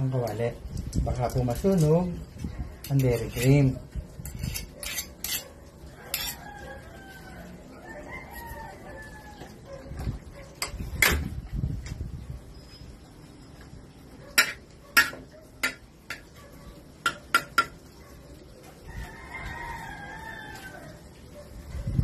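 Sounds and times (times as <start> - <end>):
spatula clinking against wok: 4.2 - 6.4, 14.4 - 16.4
rooster crowing: 5.9 - 9.7, 18.8 - 21.1.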